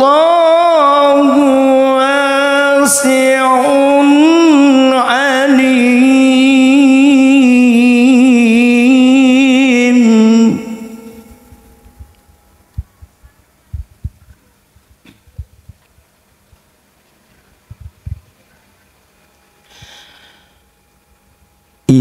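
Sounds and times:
man chanting into a microphone: 0.0s - 11.5s.

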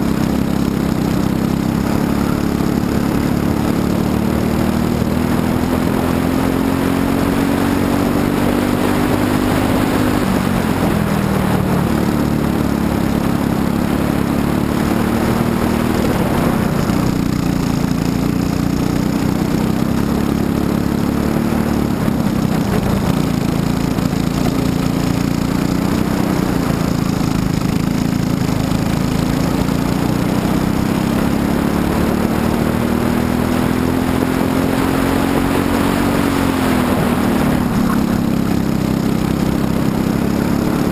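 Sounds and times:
kart engine racing: 0.0s - 40.9s.

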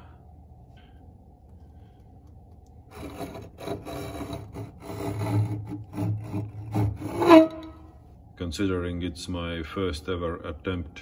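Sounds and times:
metal tool scraping fibreglass wall: 2.9s - 7.9s
sharp squeak: 6.7s - 7.9s.

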